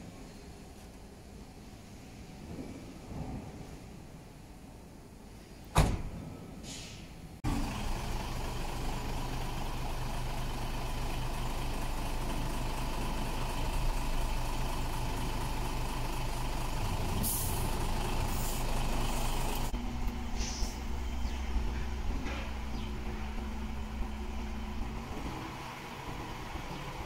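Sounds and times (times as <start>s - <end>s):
air brake hisses: 6.6s - 7.2s, 17.1s - 17.7s, 18.3s - 19.7s, 20.3s - 20.9s
diesel truck engine idling: 7.4s - 27.0s.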